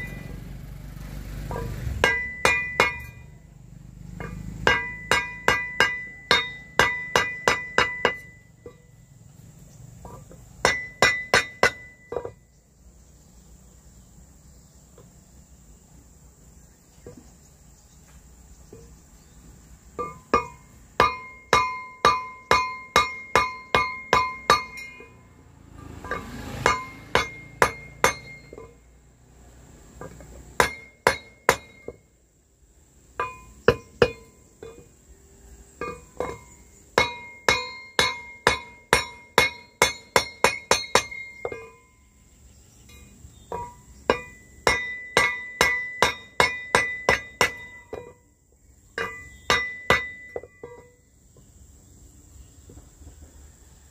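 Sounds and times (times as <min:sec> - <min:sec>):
mallet striking metal propeller: 0:01.5 - 0:03.3, 0:04.1 - 0:08.8, 0:25.9 - 0:28.8, 0:35.8 - 0:41.9.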